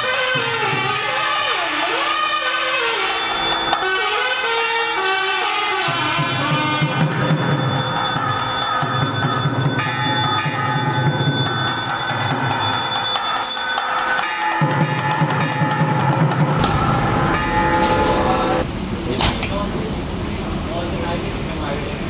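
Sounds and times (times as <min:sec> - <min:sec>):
bells ringing: 0:00.0 - 0:19.0
drumming: 0:05.2 - 0:19.1
sustained pitched tones: 0:16.4 - 0:19.2.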